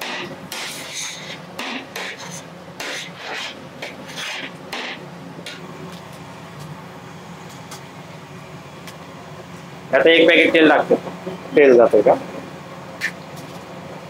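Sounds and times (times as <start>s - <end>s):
metal spatula scraping griddle: 0.0s - 5.7s
steady low hum: 0.0s - 14.0s.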